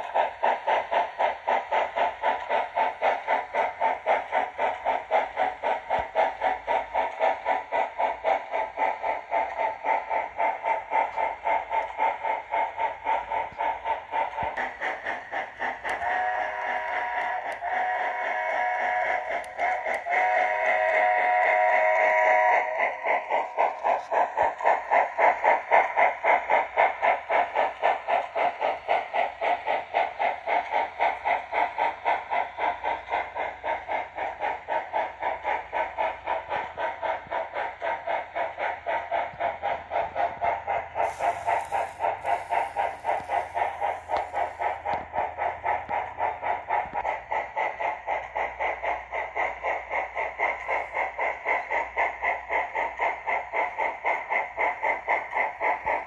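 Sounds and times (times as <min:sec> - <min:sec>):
model steam locomotive chuffing: 0:00.0 - 0:56.0
steam hiss: 0:00.0 - 0:56.0.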